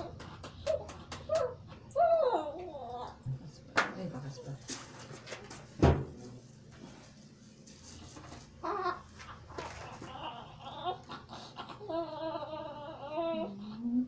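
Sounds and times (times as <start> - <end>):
baby crying: 9.7 - 13.8.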